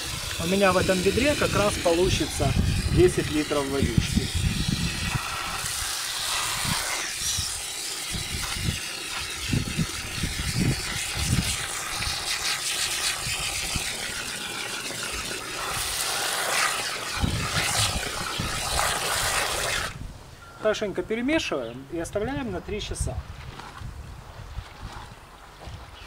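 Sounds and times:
hose water pouring into bucket: 0.0 - 20.0.

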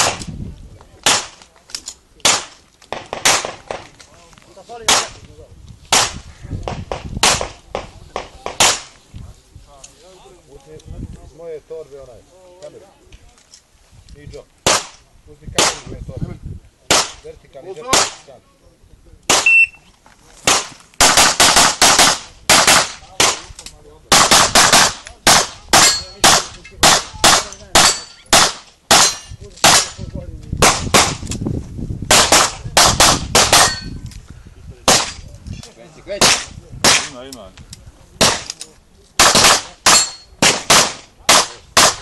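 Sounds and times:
handgun shots: 32.1 - 33.9, 39.2 - 42.0.

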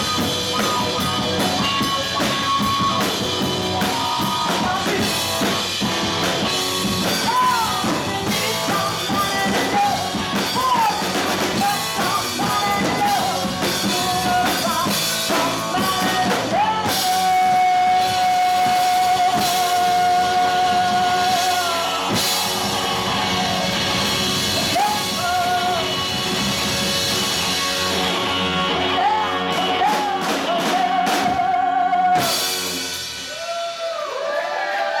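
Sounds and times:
electric guitar: 0.0 - 33.5
bass guitar: 0.0 - 33.7
drum kit: 0.0 - 34.2
woman singing: 7.2 - 22.0, 28.9 - 32.4.

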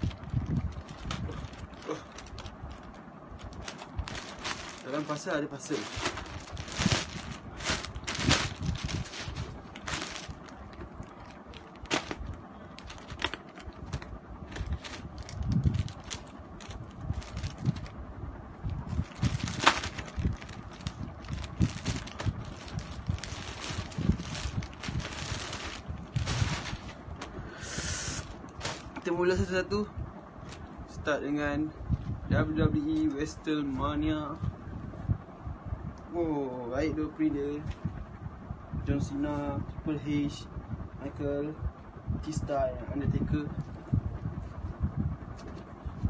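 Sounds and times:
plastic bag crinkling: 0.0 - 18.0, 18.8 - 27.3, 28.2 - 29.1.

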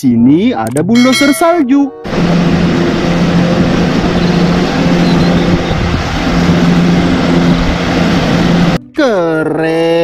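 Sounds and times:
diesel engine running: 2.0 - 8.8
plow pushing through snow: 2.1 - 8.8.

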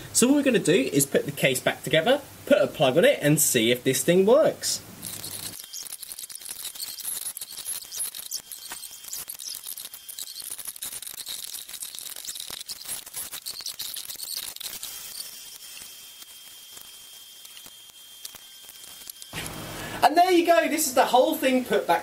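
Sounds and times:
faint high whine: 0.0 - 22.0
small clicks scrapes and squeaks: 5.0 - 19.4.

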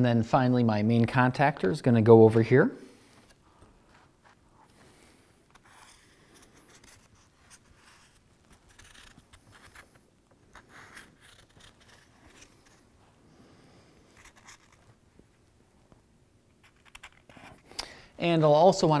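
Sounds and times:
marker scratching on cardboard: 5.6 - 9.8, 10.5 - 12.8, 14.2 - 14.9.

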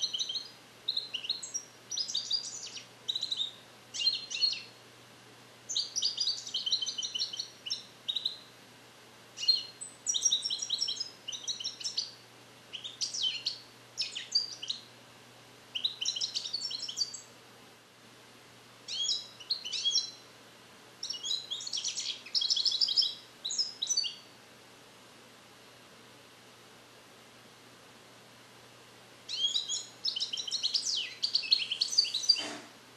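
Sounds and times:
goldfinch twittering song: 0.0 - 4.7, 5.7 - 8.4, 9.4 - 14.9, 15.8 - 17.3, 18.9 - 20.2, 21.0 - 24.2, 29.3 - 32.4.

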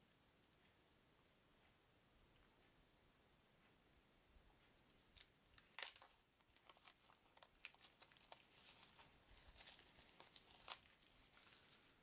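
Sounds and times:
plastic wrap crackling: 5.0 - 12.0.

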